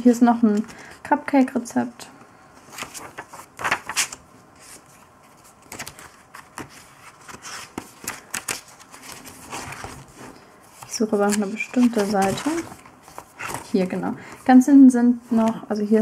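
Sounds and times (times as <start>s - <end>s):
paper pages being flipped: 2.6s - 13.7s.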